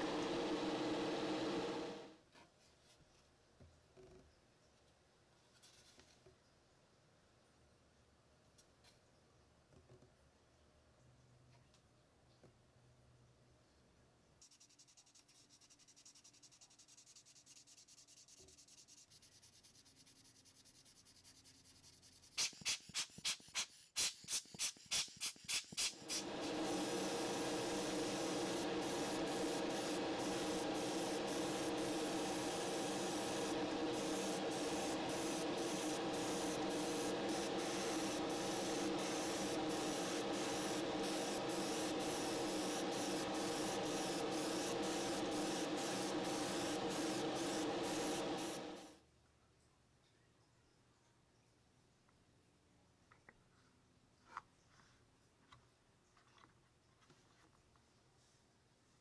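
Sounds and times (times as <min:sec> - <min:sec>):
steady hum: 0:00.0 - 0:02.2, 0:25.9 - 0:49.0
spray primer hissing: 0:22.3 - 0:48.9.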